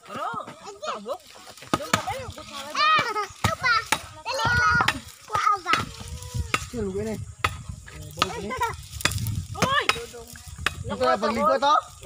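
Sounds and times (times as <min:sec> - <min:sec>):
blade chopping coconuts: 0:01.6 - 0:06.8.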